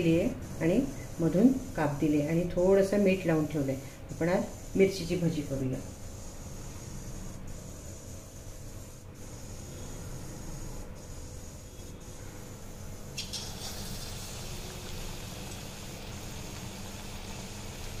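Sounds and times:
steady low hum: 0:00.0 - 0:18.0
hot oil sizzling: 0:13.2 - 0:18.0.

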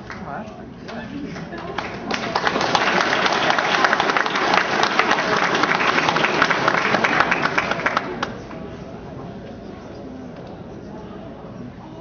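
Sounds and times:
audience applauding: 0:01.4 - 0:08.6.

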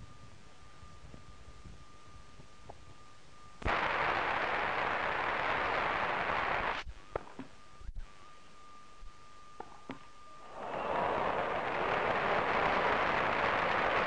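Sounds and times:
crowd applauding: 0:10.5 - 0:14.0.

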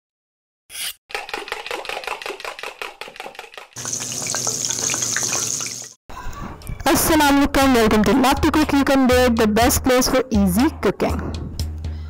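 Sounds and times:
food sizzling in a pan: 0:03.8 - 0:06.0.

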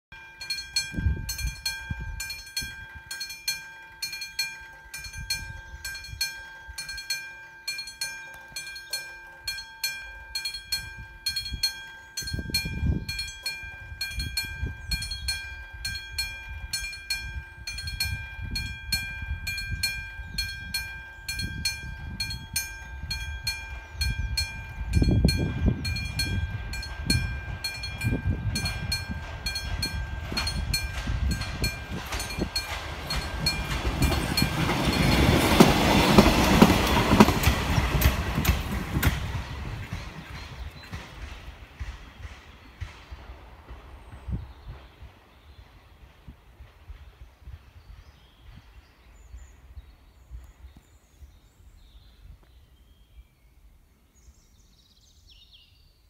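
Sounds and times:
level-crossing warning bell ringing: 0:00.1 - 0:38.6.

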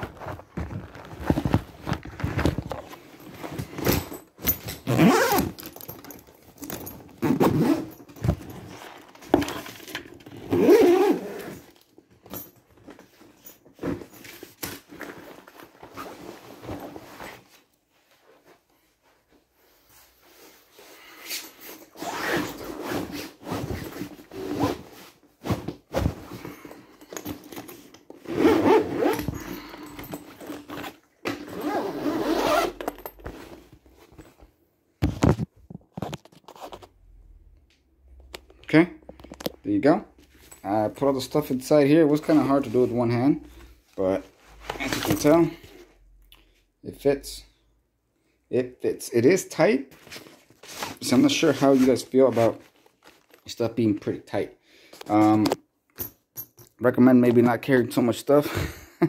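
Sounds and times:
fabric rustling and scraping: 0:00.0 - 0:09.8, 0:13.0 - 0:37.0, 0:49.9 - 0:53.4
zipper: 0:02.5 - 0:05.9, 0:06.7 - 0:08.9, 0:10.4 - 0:11.8, 0:21.3 - 0:25.6, 0:28.2 - 0:33.7.

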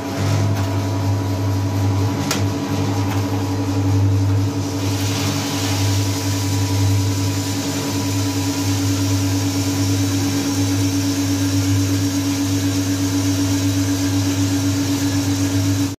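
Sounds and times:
roaster motor and fan hum: 0:00.0 - 0:16.0
coffee beans pouring and rattling: 0:04.5 - 0:10.7.

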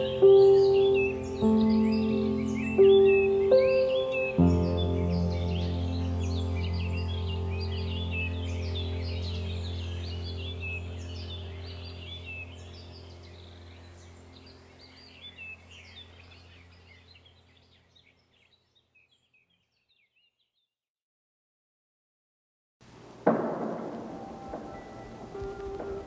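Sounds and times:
steady low hum: 0:00.0 - 0:17.8
small birds chirping: 0:00.0 - 0:20.7, 0:23.5 - 0:26.0.

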